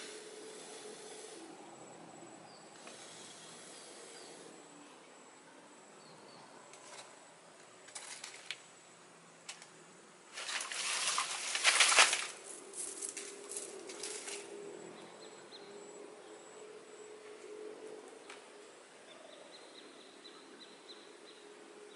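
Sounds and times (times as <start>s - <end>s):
dry leaves rustling: 10.3s - 14.6s.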